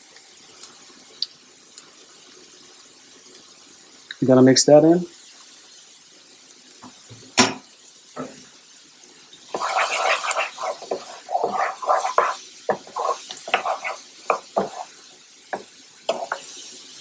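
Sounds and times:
wooden spoon scraping a skillet: 9.5 - 16.9.

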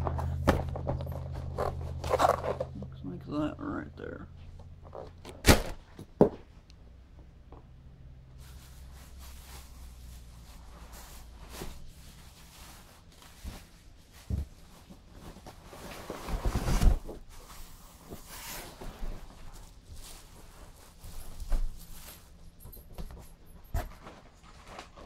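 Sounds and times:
cardboard box rustling and scraping: 0.0 - 2.8, 10.9 - 20.8.

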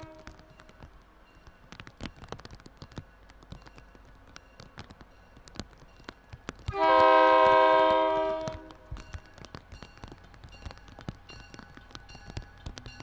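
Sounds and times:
light irregular clicking: 0.0 - 6.8, 8.4 - 13.0
train air horn chord: 6.8 - 8.8.

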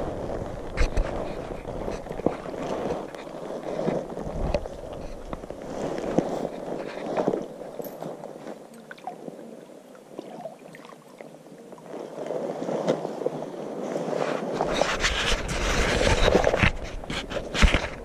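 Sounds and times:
camera handling rustle and rumble: 0.0 - 9.8, 11.7 - 18.0
fish splashing in water: 8.6 - 11.5.

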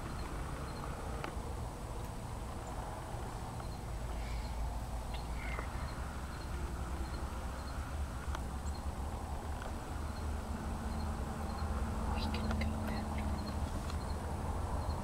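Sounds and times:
faint bird chirps: 3.6 - 7.9, 10.0 - 15.0.

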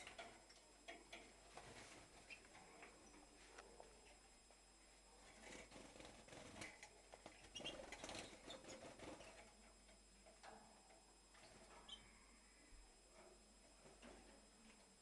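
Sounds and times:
birds scuffling in cage: 5.3 - 9.6
finches chirping: 7.4 - 9.0.

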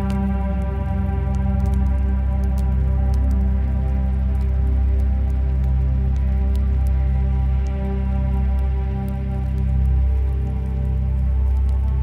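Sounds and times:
ambient music: 0.0 - 12.0
faint light ticks: 0.0 - 12.0.

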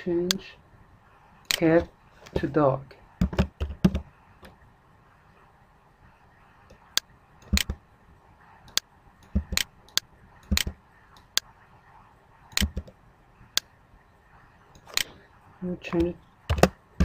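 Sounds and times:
keyboard and mouse clicking: 3.2 - 4.6, 6.7 - 7.8, 8.6 - 11.5, 12.5 - 13.0, 14.7 - 15.1, 15.9 - 16.8.

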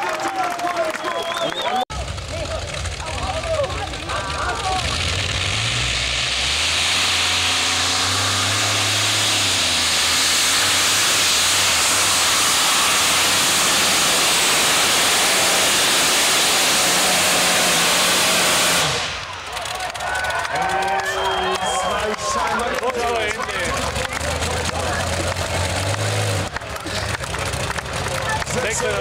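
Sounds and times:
tractor engine roaring: 1.9 - 29.0.

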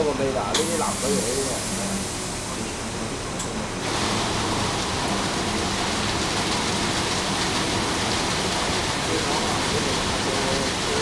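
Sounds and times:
car wash water spraying: 3.8 - 11.0.

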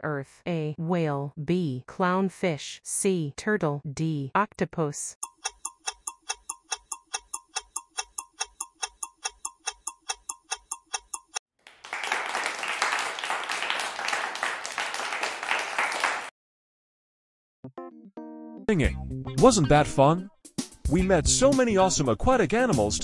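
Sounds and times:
clock ticking: 5.2 - 11.4
recorded applause: 11.6 - 16.3.

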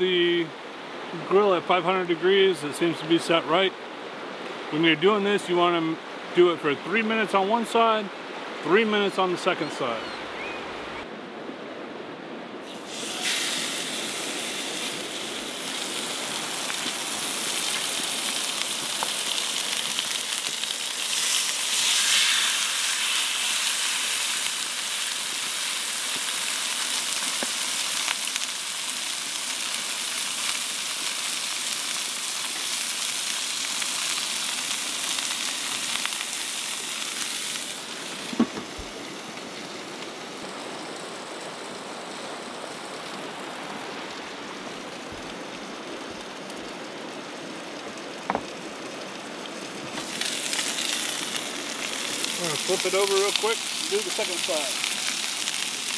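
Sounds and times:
river water rushing: 0.0 - 21.6, 34.8 - 55.9
fish sizzling in a skillet: 12.6 - 40.1, 49.8 - 55.9
single knock: 38.4 - 38.7, 48.3 - 48.5.

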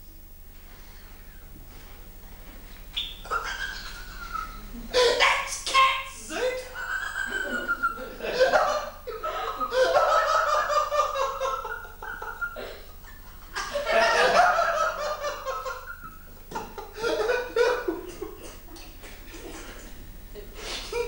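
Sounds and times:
person laughing: 3.2 - 5.2, 6.4 - 21.0.

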